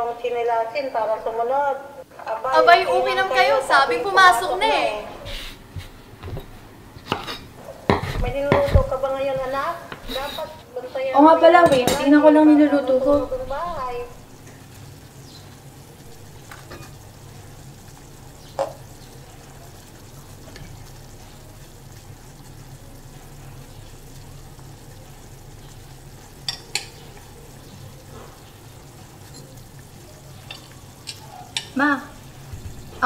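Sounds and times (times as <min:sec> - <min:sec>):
low steady hum: 0:00.0 - 0:33.0
vegetables sizzling in a pot: 0:02.0 - 0:33.0
utensil clinking against pot: 0:26.4 - 0:27.3, 0:29.2 - 0:29.6, 0:30.4 - 0:31.8.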